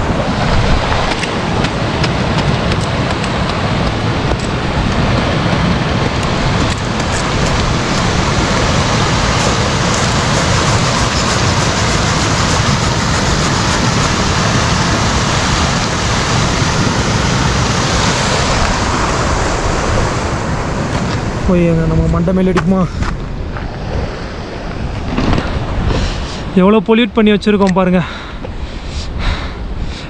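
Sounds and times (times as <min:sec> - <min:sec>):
stream rushing over rocks: 0:00.0 - 0:22.4.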